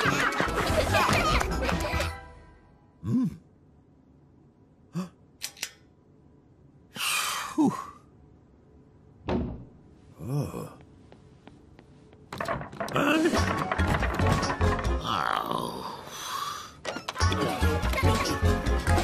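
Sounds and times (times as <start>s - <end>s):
thud: 9.3s - 9.7s
breathy sigh: 15.8s - 16.8s.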